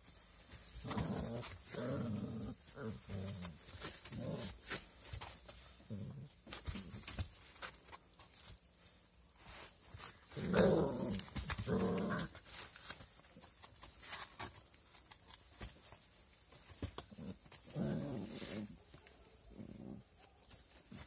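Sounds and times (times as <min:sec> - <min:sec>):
puppies growling: 0:00.7 - 0:04.8, 0:10.3 - 0:12.4, 0:17.0 - 0:18.8.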